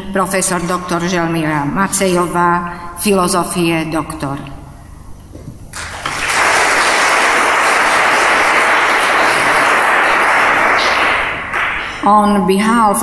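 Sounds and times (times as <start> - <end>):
audience applauding: 5.7 - 12.0.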